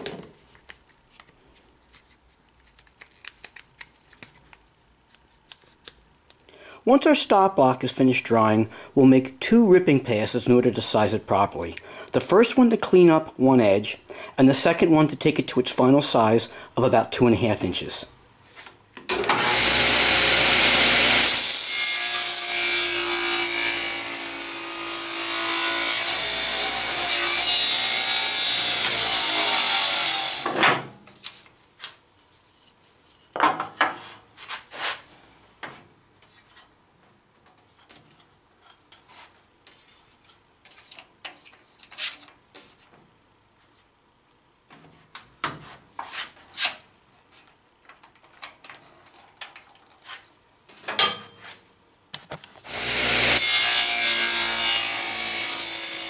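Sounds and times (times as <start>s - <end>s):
table saw cutting wood: 19.1s - 30.8s, 52.7s - 56.0s.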